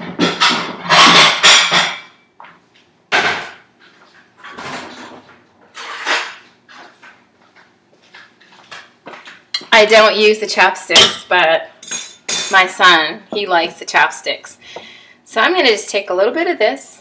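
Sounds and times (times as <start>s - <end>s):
dishes and utensils knocking: 0.0s - 2.2s, 10.9s - 12.6s.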